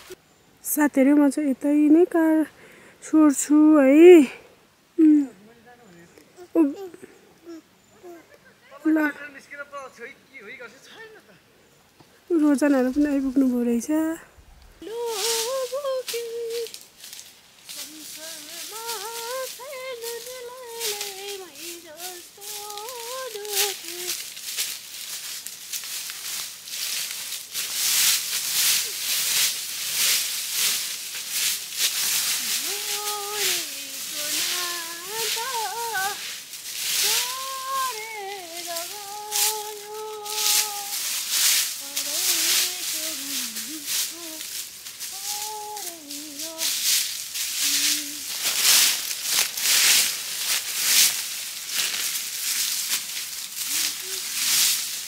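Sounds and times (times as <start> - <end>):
dry leaves rustling and crunching: 12.4 - 55.0.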